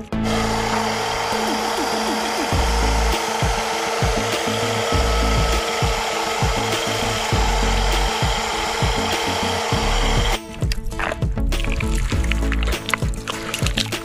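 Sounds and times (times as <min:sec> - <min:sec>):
background music with beat: 0:00.0 - 0:14.0
toy excavator motors whirring: 0:00.2 - 0:11.2.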